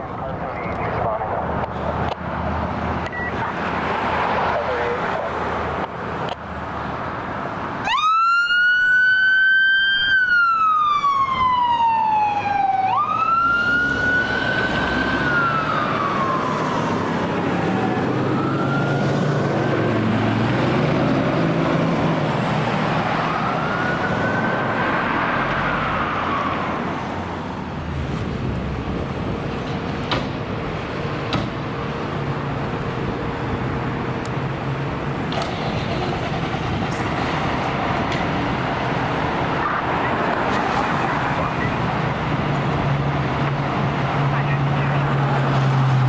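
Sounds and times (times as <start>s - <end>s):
fire truck siren wailing: 7.8s - 27.3s.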